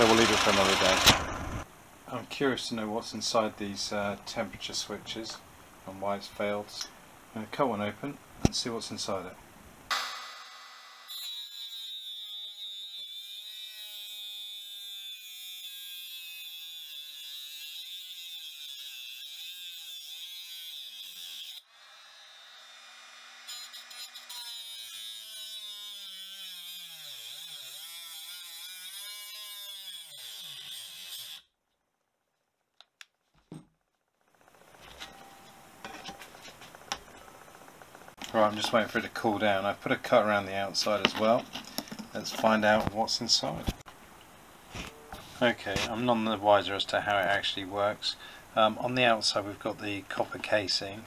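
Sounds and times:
angle grinder cutting metal: 0:00.0 - 0:01.6, 0:09.9 - 0:31.5.

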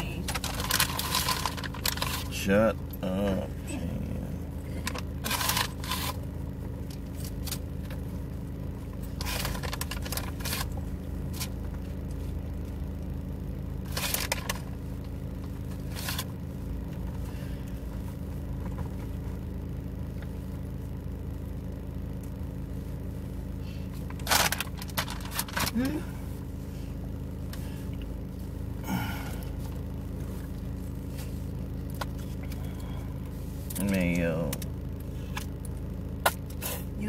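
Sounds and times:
car engine idling: 0:00.0 - 0:37.0
packaging rustling and scraping: 0:00.2 - 0:02.4, 0:05.2 - 0:06.2, 0:09.0 - 0:11.6, 0:24.2 - 0:25.8.

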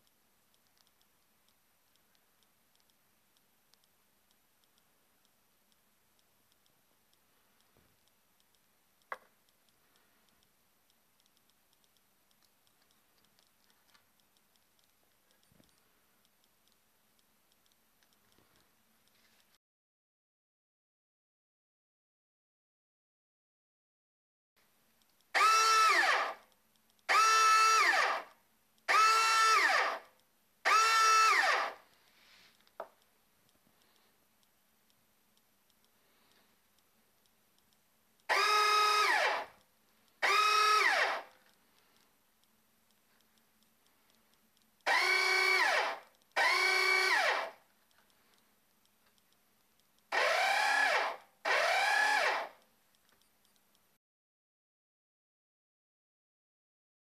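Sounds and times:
faint rapid ticking: 0:00.0 - 0:19.6, 0:26.4 - 0:27.1, 0:31.8 - 0:54.0
sharp click: 0:32.5 - 0:53.9
electric motor whine: 0:44.9 - 0:47.5, 0:50.2 - 0:52.5.

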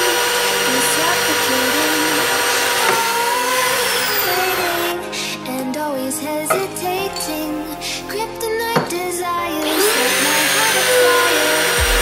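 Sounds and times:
tube bender motor whining: 0:00.0 - 0:05.0, 0:09.6 - 0:12.0.

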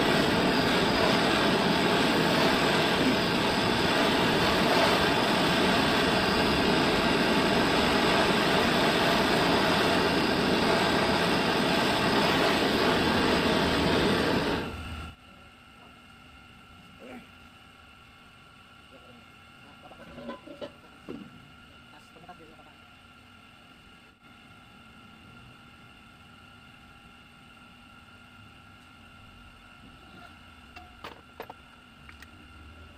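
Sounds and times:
gas torch hissing: 0:00.0 - 0:15.2.

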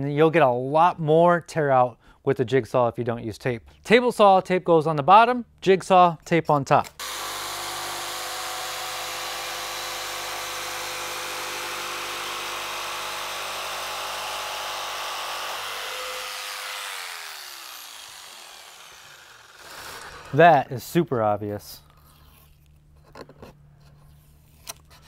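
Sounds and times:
jigsaw cutting through plywood: 0:07.0 - 0:20.4.

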